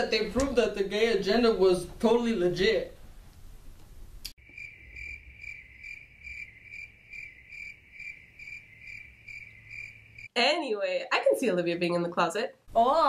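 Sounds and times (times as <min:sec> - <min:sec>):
cricket chirping: 0:04.4 - 0:10.4.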